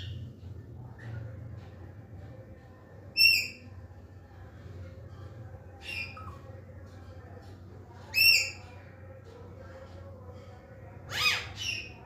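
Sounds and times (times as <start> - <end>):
parakeet squawking: 11.1 - 11.9.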